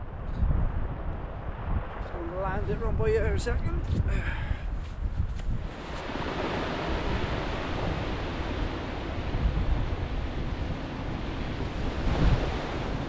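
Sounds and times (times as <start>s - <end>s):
wind buffeting microphone: 0.0s - 13.0s
sea surf washing in: 5.4s - 13.0s.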